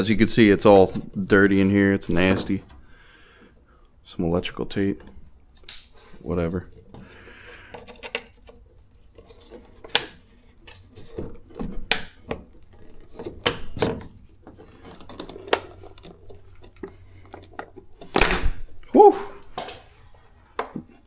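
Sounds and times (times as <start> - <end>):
scraping and rustling: 5.9 - 18.1.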